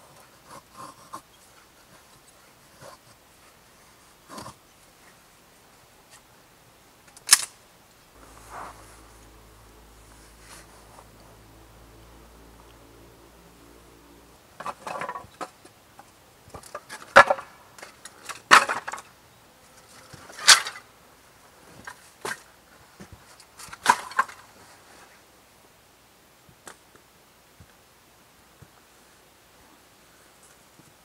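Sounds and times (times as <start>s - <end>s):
wood scraping: 8.2s - 11.6s, 14.5s - 19.1s.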